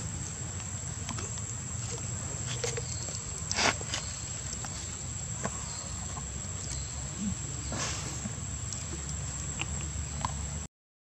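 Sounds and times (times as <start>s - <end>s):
steady low rumble: 0.0s - 10.7s.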